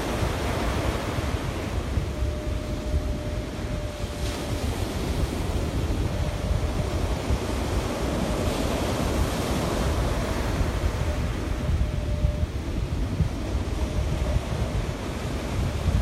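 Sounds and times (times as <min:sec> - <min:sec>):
ocean surf washing up beach: 0:00.0 - 0:16.0
wind buffeting microphone: 0:00.0 - 0:16.0.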